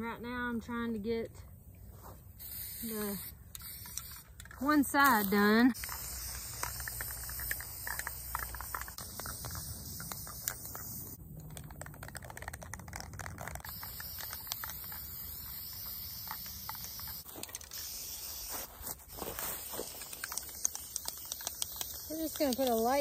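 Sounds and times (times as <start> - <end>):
spray paint can hissing: 2.4 - 23.0
dry straw crackling: 12.9 - 23.0.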